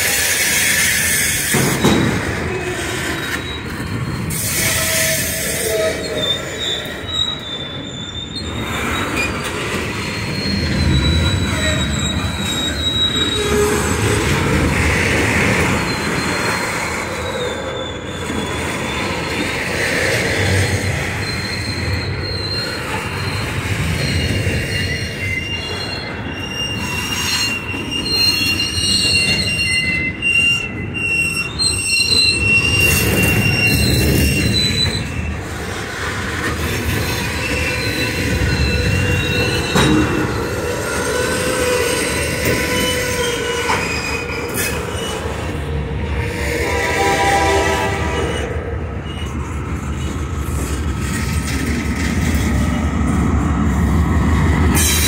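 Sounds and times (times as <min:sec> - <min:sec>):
rumble of wheels on rail: 0:00.0 - 0:55.0
train wheels squealing: 0:00.0 - 0:55.0.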